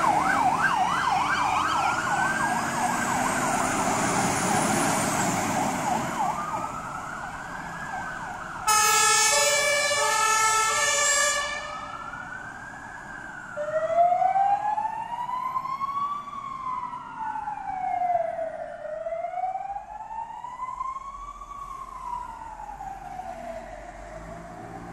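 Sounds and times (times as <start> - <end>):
fire engine siren wailing: 0.0 - 24.9
two-tone air horn: 8.7 - 11.6.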